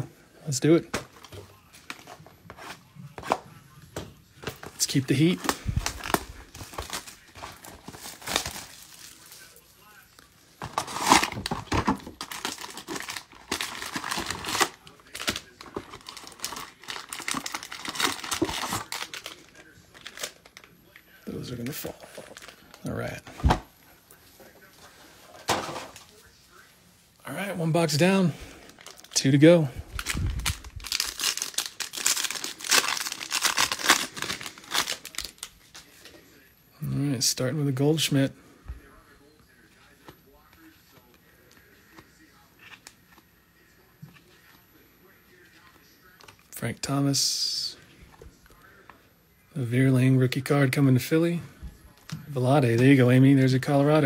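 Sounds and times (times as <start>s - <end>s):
cardboard and foil crinkling: 4.4s - 23.6s, 27.9s - 36.2s.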